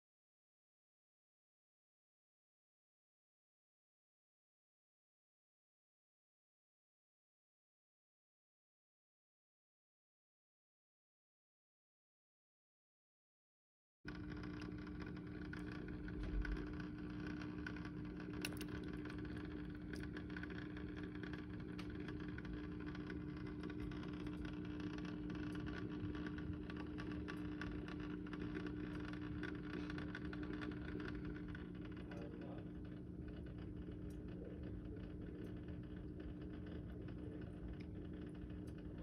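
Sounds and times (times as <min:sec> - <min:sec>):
faint ticks: 0:14.1 - 0:39.0.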